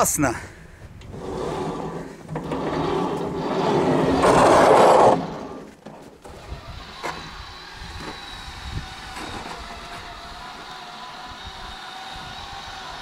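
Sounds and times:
blade scraping through snow: 1.2s - 5.8s
electric motor whirring: 2.8s - 13.0s.

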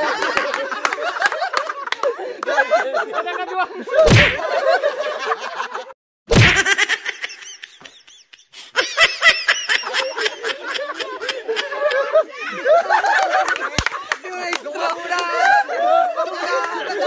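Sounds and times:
men laughing heartily: 0.0s - 17.0s.

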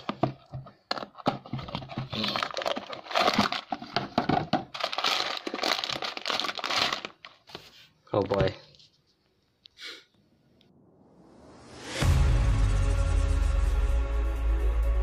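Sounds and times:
plastic bag crinkling: 0.9s - 7.6s.

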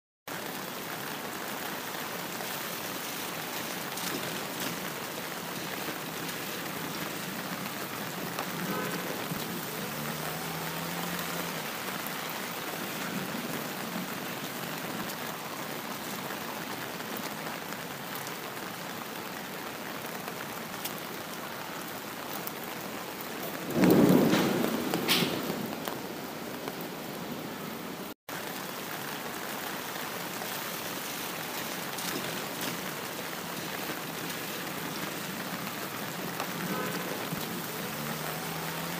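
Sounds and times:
steady rain falling: 0.3s - 38.9s
thunder clap: 23.6s - 26.1s.

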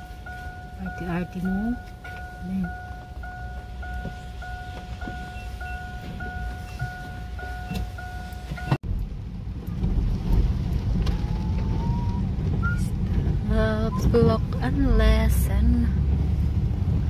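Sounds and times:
vehicle driving on wet pavement: 0.0s - 17.0s
rain: 8.9s - 17.0s.

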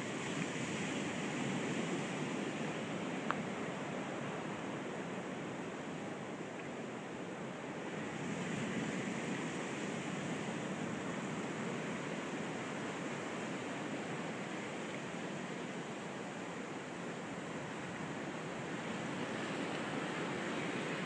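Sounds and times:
ocean surf washing: 7.1s - 21.0s.

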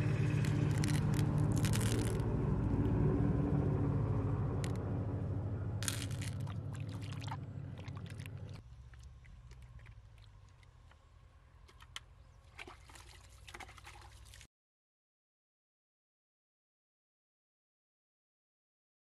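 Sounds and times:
loud low hum: 0.0s - 8.6s
water sloshing in a plastic bucket: 5.8s - 11.0s, 11.6s - 14.5s.

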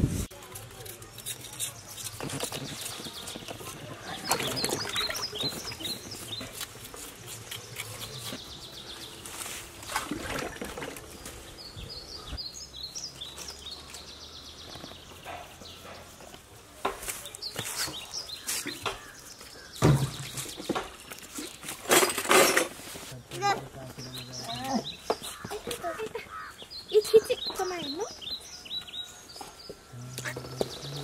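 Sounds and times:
knives scraping yam skins: 0.5s - 3.8s, 5.5s - 8.6s
small birds chirping: 0.5s - 22.2s, 23.1s - 31.0s.

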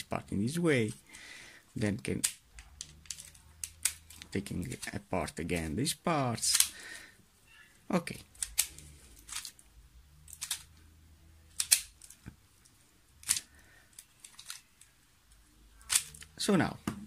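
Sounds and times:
plastic puzzle cube clicking: 2.2s - 5.0s, 6.4s - 6.8s, 8.2s - 9.6s, 10.3s - 10.8s, 11.5s - 12.3s, 13.2s - 14.9s, 15.8s - 16.4s.

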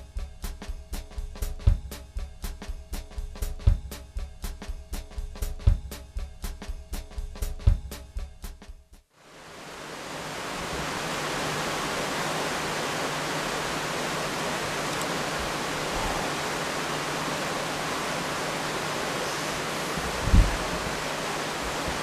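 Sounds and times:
steady hiss: 9.2s - 22.0s.

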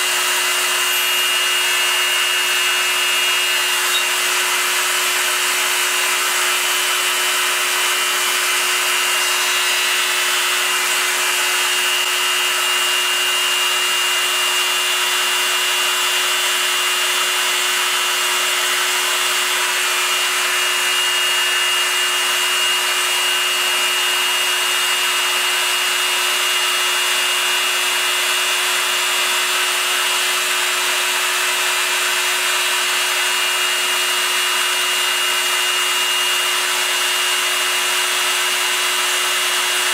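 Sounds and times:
spindle motor humming and whining: 0.0s - 39.9s
end mill cutting metal hiss: 8.4s - 11.8s.

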